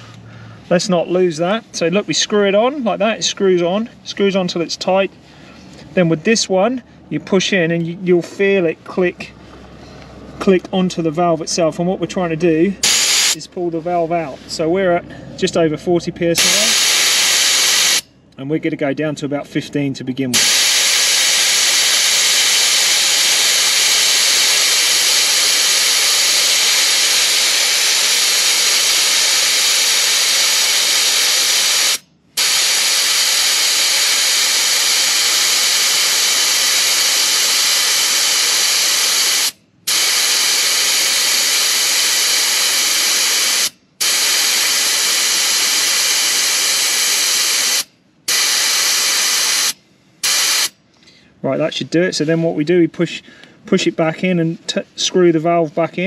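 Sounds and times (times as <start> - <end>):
air hissing out of a tyre: 0.0 - 0.7, 12.8 - 13.4, 16.4 - 18.1, 20.4 - 50.8.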